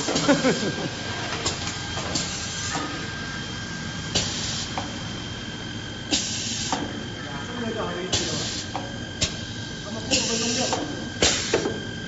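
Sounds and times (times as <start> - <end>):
machine humming with thin whine: 0.0 - 12.0
pneumatic air hisses: 4.1 - 4.8, 6.1 - 6.9, 8.1 - 9.4, 10.1 - 11.7.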